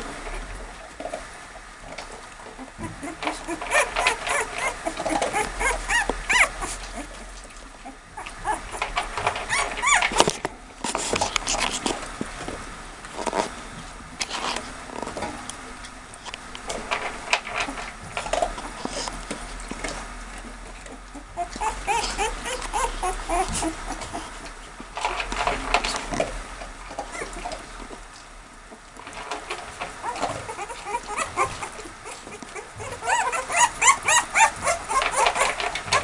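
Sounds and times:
puppies scuffling on bedding: 0:02.0 - 0:15.4, 0:16.6 - 0:36.0
puppies whimpering and squeaking: 0:02.5 - 0:10.4, 0:20.7 - 0:24.5, 0:27.0 - 0:27.7, 0:29.7 - 0:36.0.

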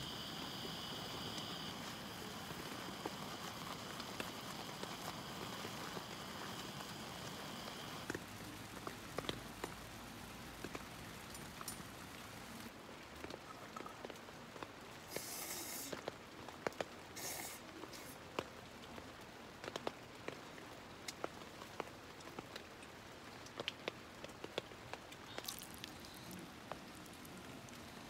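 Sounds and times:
raindrops tapping: 0:00.0 - 0:15.2, 0:15.9 - 0:28.0
faint steady hiss: 0:00.0 - 0:28.0
brief rustling hisses: 0:15.1 - 0:16.0, 0:17.2 - 0:18.2.

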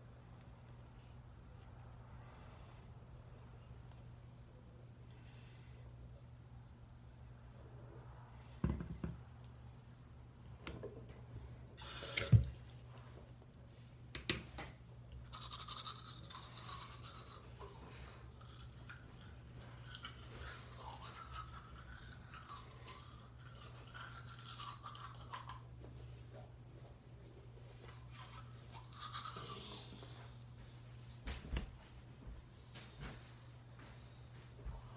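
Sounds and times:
toothbrush scrubbing teeth: 0:15.2 - 0:30.3.

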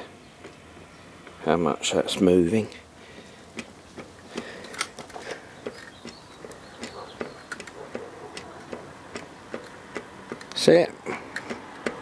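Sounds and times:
wheel hub clicking and knocking: 0:03.6 - 0:12.0.

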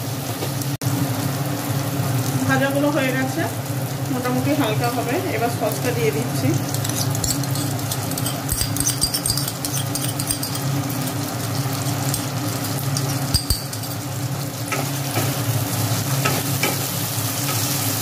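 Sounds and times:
vegetables sizzling in oil: 0:00.0 - 0:18.0
spatula scraping and tapping: 0:06.7 - 0:10.8, 0:11.4 - 0:14.0.

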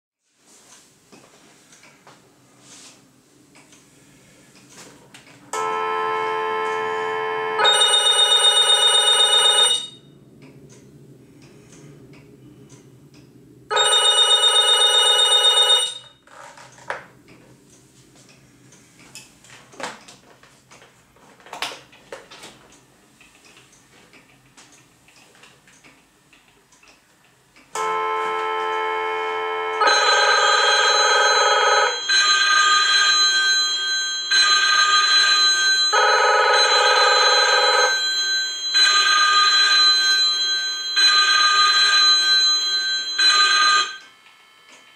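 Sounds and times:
telephone ringer trilling: 0:13.7 - 0:16.2, 0:29.8 - 0:44.0.

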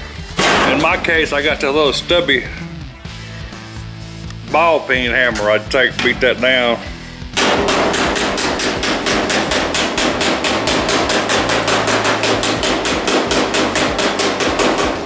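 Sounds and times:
hammer beating sheet metal: 0:00.4 - 0:01.1, 0:07.4 - 0:15.0.

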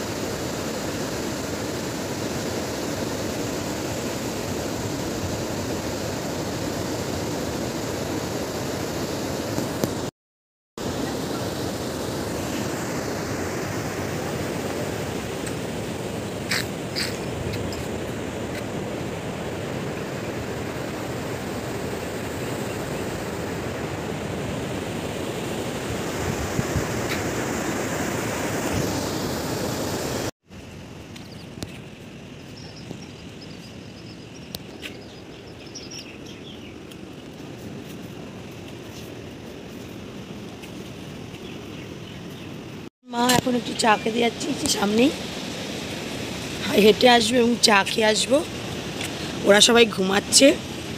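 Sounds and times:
surf breaking on beach: 0:10.8 - 0:30.3
outdoor background hiss: 0:10.8 - 0:50.9
birds chirping: 0:16.3 - 0:18.0, 0:31.2 - 0:37.0, 0:41.3 - 0:42.8.

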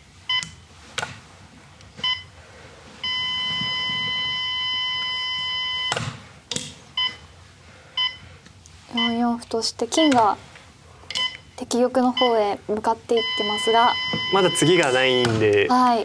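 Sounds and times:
game clock beeping: 0:11.2 - 0:11.4, 0:12.0 - 0:12.5, 0:13.1 - 0:15.4.

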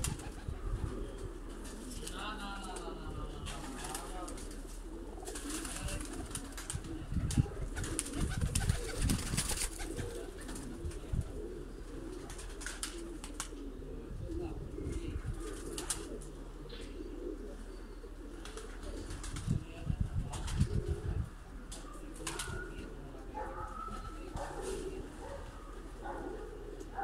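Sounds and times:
pigeons cooing: 0:00.0 - 0:27.0.

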